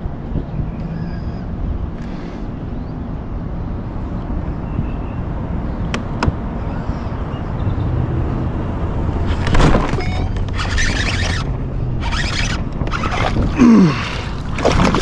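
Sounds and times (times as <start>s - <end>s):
low rumble of wind or water: 0.0s - 15.0s
water splashing: 9.3s - 15.0s.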